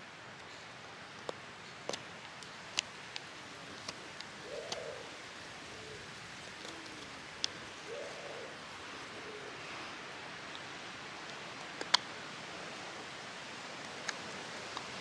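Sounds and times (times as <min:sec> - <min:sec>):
cooing bird calls: 0:03.5 - 0:10.1.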